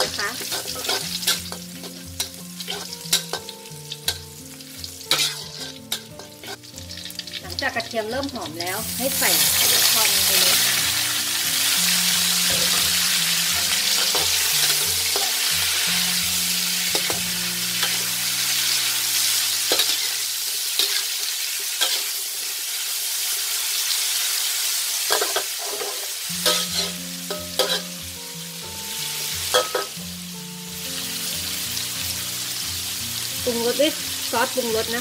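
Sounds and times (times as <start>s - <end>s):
metal spatula scraping a wok: 0.0s - 7.3s, 12.0s - 22.4s, 25.0s - 28.1s, 29.2s - 30.0s
vegetables sizzling in oil: 0.0s - 35.0s.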